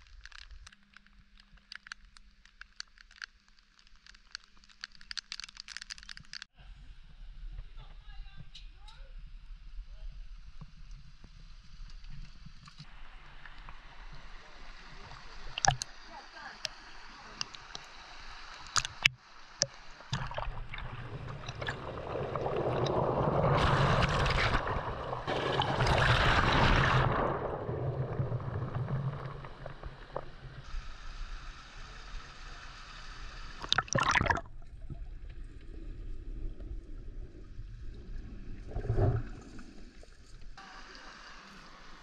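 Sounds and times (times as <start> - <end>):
water sloshing and gurgling: 10.4 - 30.7, 33.6 - 40.6
rushing splashing water: 12.9 - 30.7, 33.6 - 34.5.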